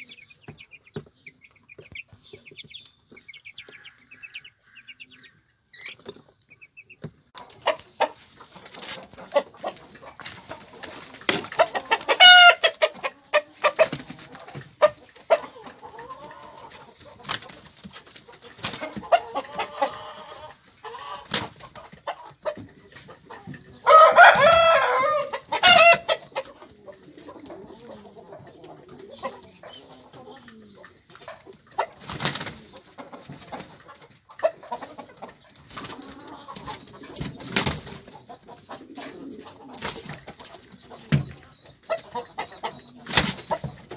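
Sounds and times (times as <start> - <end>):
chickens clucking: 0.0 - 43.9
loud chicken calls: 3.1 - 6.0, 8.8 - 14.1, 18.7 - 22.3, 23.7 - 26.6.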